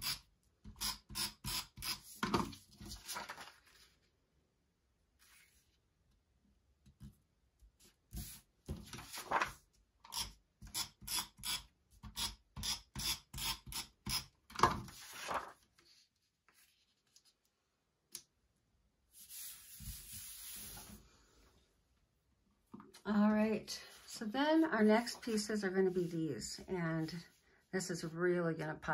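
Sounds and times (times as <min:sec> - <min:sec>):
paper rubbing strokes: 0:08.1 - 0:09.5, 0:15.0 - 0:17.3, 0:19.1 - 0:21.3
hand smoothing paper: 0:15.0 - 0:17.2, 0:19.1 - 0:21.1, 0:23.9 - 0:26.2.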